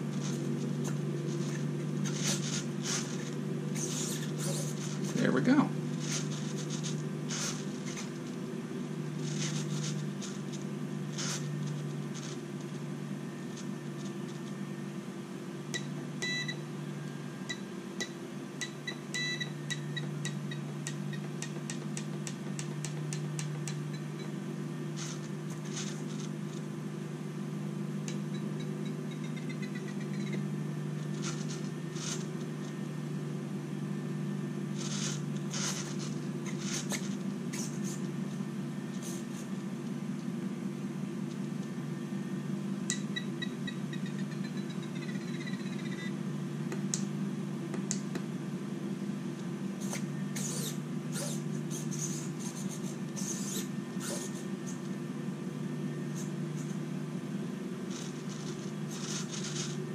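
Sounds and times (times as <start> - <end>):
servos whirring: 0.0 - 14.6, 34.5 - 39.6, 49.8 - 55.0
low hum: 0.0 - 59.9
short electronic beeps: 15.8 - 16.7, 17.4 - 21.3, 28.1 - 30.5, 42.9 - 46.2.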